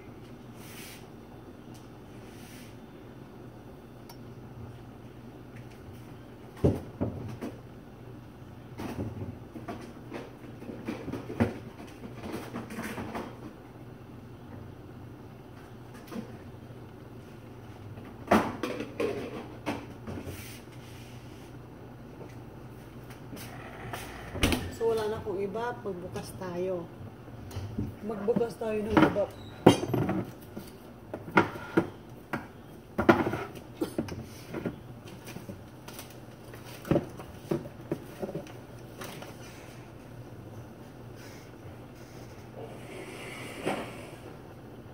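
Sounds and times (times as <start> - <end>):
steady low hum: 13.3 - 44.9
items clattering: 27.6 - 32.0, 32.9 - 39.8.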